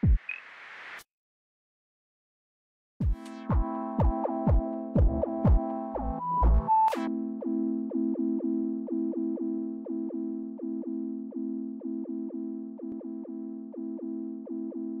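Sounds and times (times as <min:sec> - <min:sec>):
synthesized keyboard repeated notes: 0:03.0 - 0:15.0.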